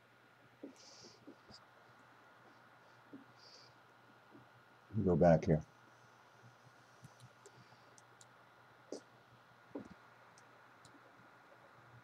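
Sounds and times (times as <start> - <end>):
faint computer mouse clicks: 7.0 - 8.3.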